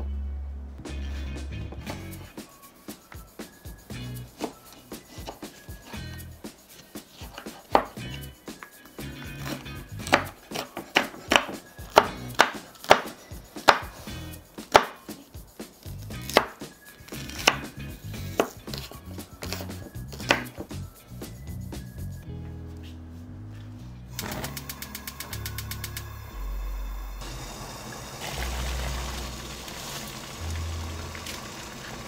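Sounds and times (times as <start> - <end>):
knife chopping on wooden board: 4.4 - 5.9, 7.1 - 8.0, 9.4 - 15.2, 16.2 - 20.8.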